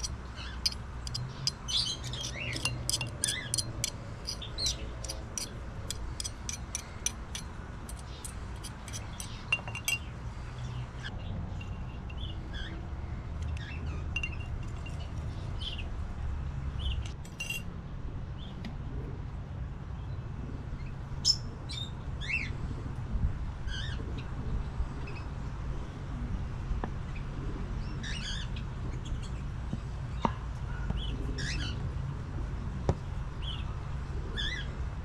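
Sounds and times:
rapid light clicks and clinks: 0.0 - 10.1.

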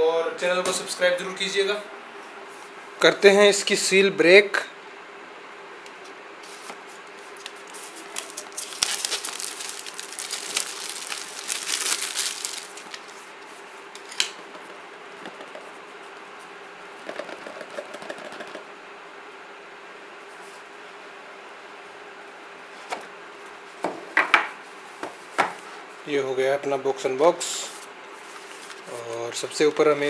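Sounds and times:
faint steady hum: 0.0 - 30.0
plastic film crinkling and tearing: 7.2 - 13.3
knife slitting plastic film: 7.4 - 13.1.

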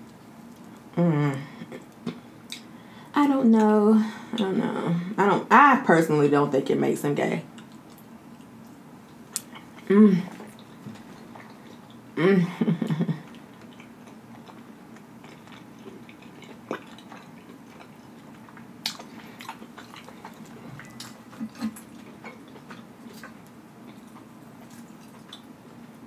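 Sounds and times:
person chewing with mouth clicks: 7.5 - 12.1, 13.2 - 26.0.

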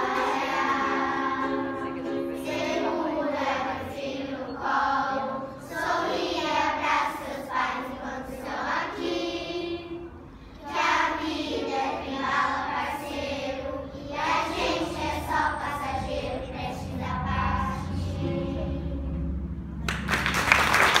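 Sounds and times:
children's choir singing: 0.0 - 19.7
applause: 19.8 - 21.0.

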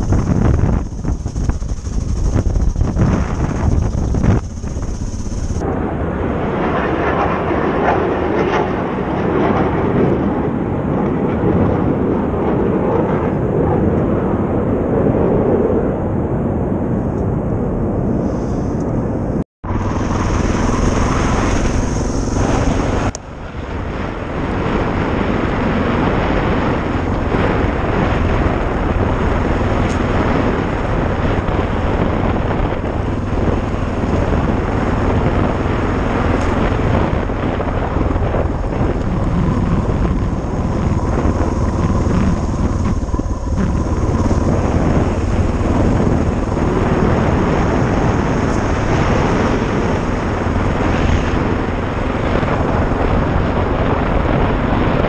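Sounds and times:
motorcycle engine running: 0.0 - 5.7, 19.6 - 55.0.

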